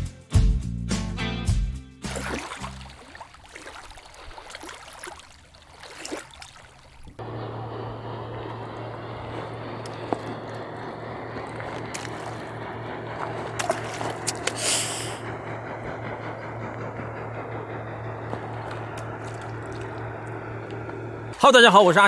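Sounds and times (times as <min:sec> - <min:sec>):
low engine hum: 0:02.0 - 0:22.0
burst of hiss: 0:14.5 - 0:15.3.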